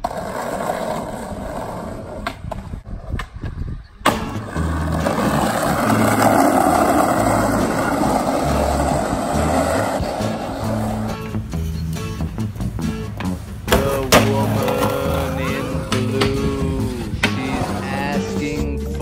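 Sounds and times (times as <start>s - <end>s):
skateboard wheels rolling: 0.0s - 18.3s
skateboard clacks: 13.1s - 16.5s.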